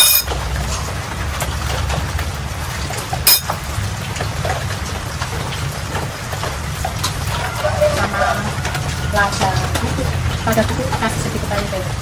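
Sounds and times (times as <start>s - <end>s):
kitchen utensils clinking: 0.0s - 1.0s, 3.1s - 3.7s.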